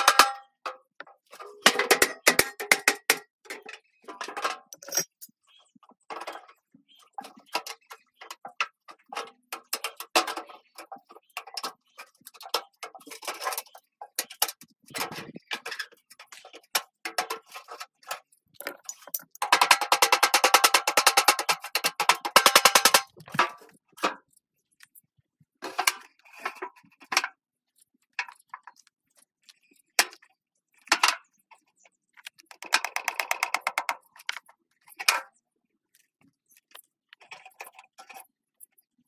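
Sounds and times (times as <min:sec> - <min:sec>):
metal clicks and clanks: 0:00.0 - 0:05.3
small hammer tapping metal: 0:04.8 - 0:05.3.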